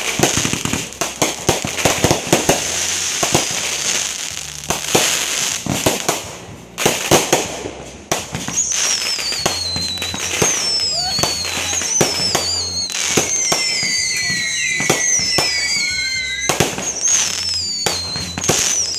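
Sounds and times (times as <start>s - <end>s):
crackling fireworks hiss: 0.0s - 18.9s
fireworks bangs and pops: 0.0s - 18.9s
whistle falling in pitch: 8.5s - 18.9s.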